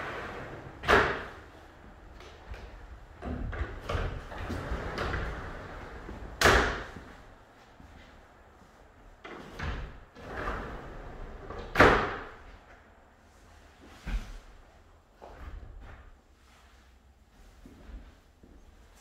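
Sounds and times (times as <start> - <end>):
glass panels rolling on track: 0.0 - 1.2.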